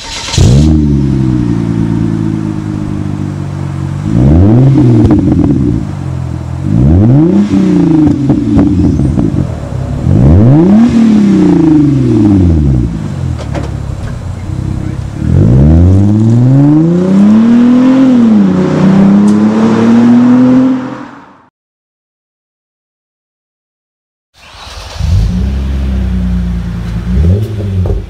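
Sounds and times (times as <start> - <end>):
exhaust crackles: 0.0 - 20.4
car engine idling and revving: 0.0 - 21.5, 24.5 - 28.0.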